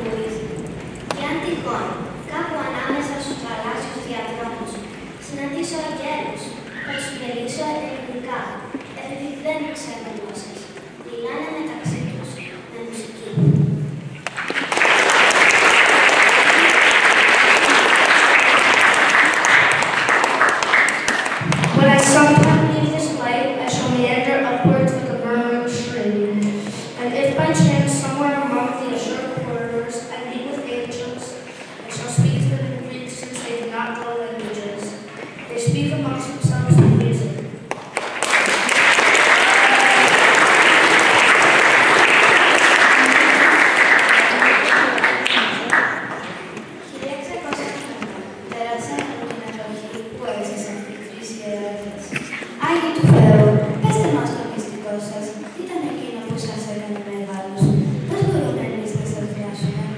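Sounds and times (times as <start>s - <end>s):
audience applauding: 14.2s - 21.7s, 37.7s - 46.5s.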